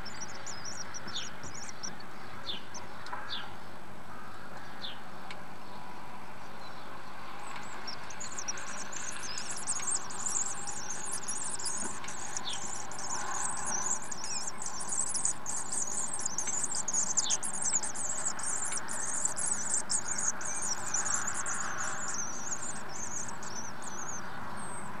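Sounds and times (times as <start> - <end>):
swift chicks twittering: 0.0 - 3.6, 6.5 - 25.0.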